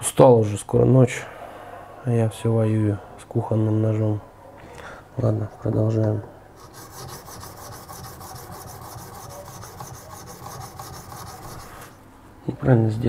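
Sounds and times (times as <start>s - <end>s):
knife rasping on sharpening stone: 6.6s - 11.9s.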